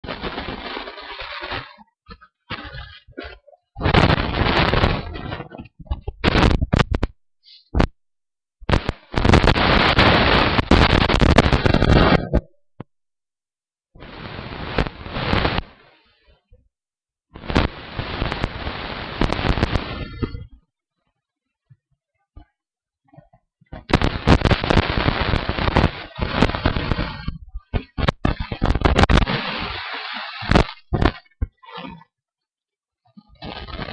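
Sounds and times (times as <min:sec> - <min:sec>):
fabric rustling on microphone: 0:00.0 - 0:07.9
microphone being handled: 0:00.0 - 0:12.9, 0:17.4 - 0:20.6, 0:23.1 - 0:32.0.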